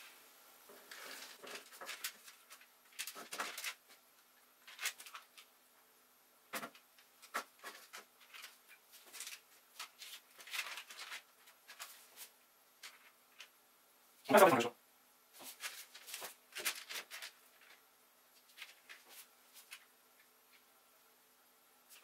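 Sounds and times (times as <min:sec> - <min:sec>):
paper rustling: 0:00.7 - 0:05.5, 0:06.5 - 0:13.5, 0:15.4 - 0:20.6.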